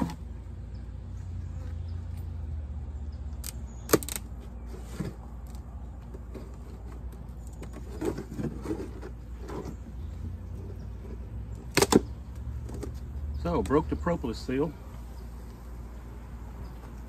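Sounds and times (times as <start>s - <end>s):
hive tool prying and scraping wood: 11.6s - 12.1s.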